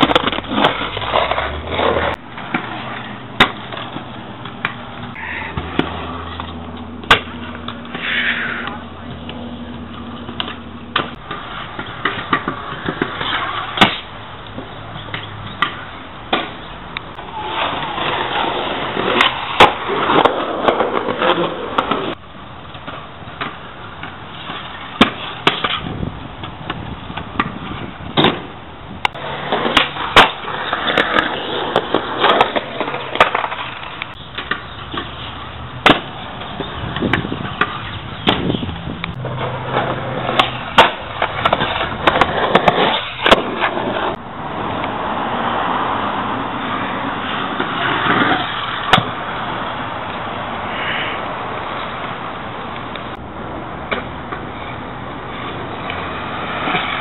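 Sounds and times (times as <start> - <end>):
scooter deck banging on pavement: 0.0 - 8.0, 9.9 - 16.7, 18.9 - 44.2, 47.5 - 49.2
scooter wheels rolling on concrete: 0.0 - 57.0.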